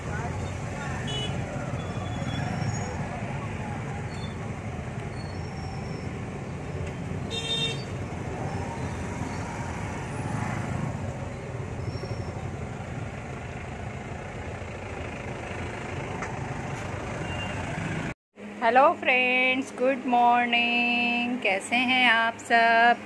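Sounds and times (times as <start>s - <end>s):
car road and engine noise: 0.0s - 18.7s
vehicle horn toot: 1.0s - 2.4s, 7.3s - 8.0s, 17.2s - 17.6s.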